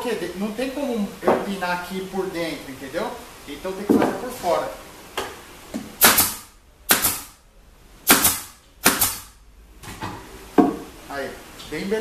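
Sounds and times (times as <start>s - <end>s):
pneumatic pin nailer firing: 6.0s - 7.4s, 8.0s - 9.4s.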